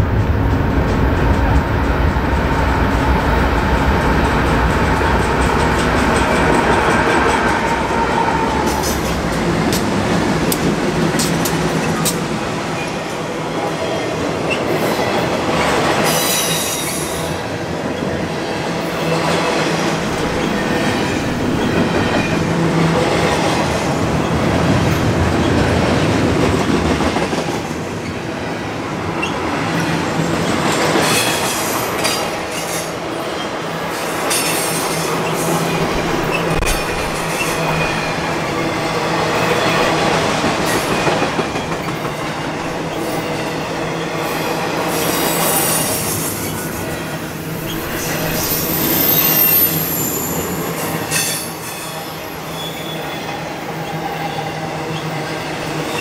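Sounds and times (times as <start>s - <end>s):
train wheel rumble: 0.0s - 52.4s
diesel locomotives rumbling: 0.0s - 56.0s
high wheel squeal: 47.6s - 53.3s.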